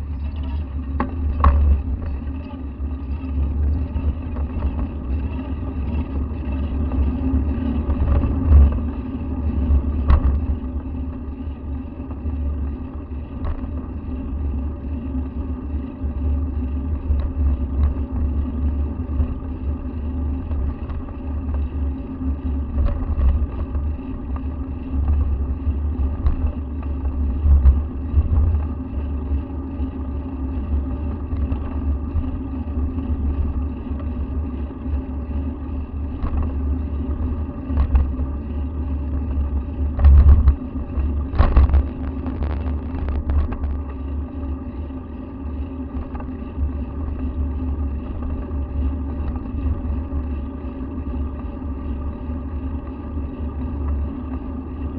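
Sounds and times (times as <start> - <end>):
road and wind rumble: 0.0 - 15.4, 16.1 - 44.5.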